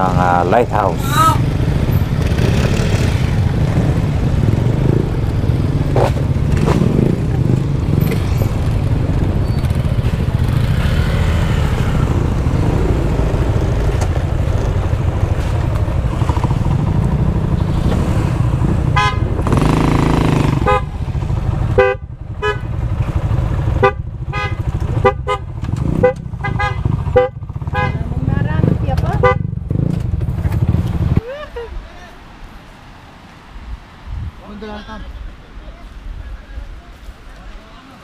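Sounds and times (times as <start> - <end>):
road and wind noise: 0.0 - 38.0
scooter horn toots: 18.9 - 19.3, 20.6 - 20.9, 21.8 - 22.7, 23.8 - 28.0.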